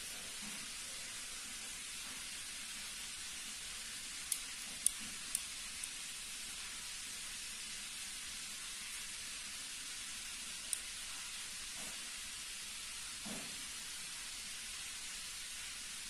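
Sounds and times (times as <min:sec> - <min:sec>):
steady background hiss: 0:00.0 - 0:16.0
multitool steel parts clicking: 0:04.3 - 0:06.0.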